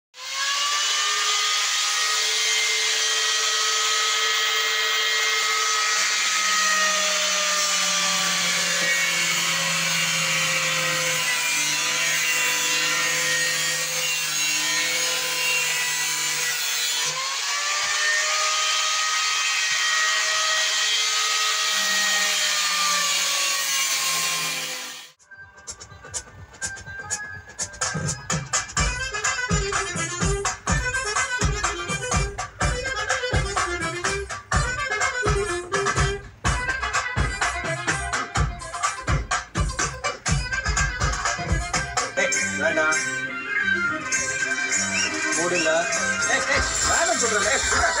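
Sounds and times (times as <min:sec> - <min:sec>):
angle grinder cutting metal: 0:00.2 - 0:25.2, 0:44.0 - 0:48.0.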